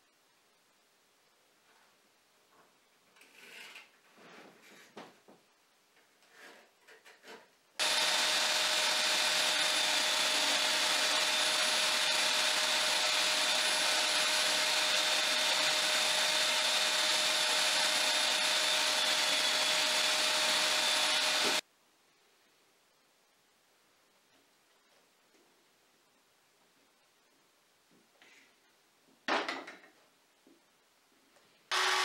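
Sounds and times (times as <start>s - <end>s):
electric drill boring into wood: 7.8s - 21.6s, 31.7s - 32.0s.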